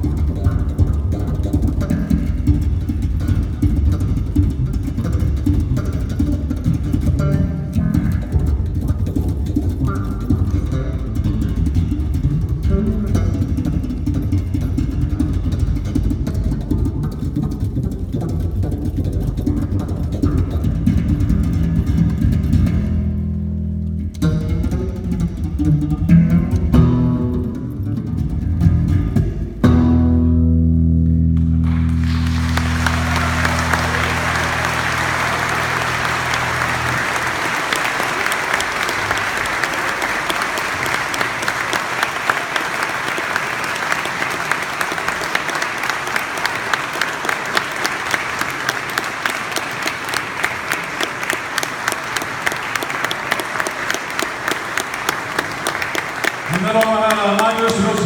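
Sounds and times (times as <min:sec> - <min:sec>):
rhythmic clapping in unison: 0:00.0 - 0:23.1, 0:31.0 - 0:58.0
electric bass guitar playing: 0:00.0 - 0:37.7
audience applause: 0:31.4 - 0:58.0.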